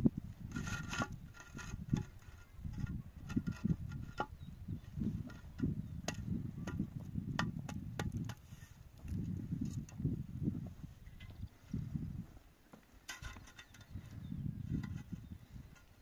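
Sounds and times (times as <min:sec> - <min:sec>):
concrete block scraping on mortar: 0:00.4 - 0:08.7.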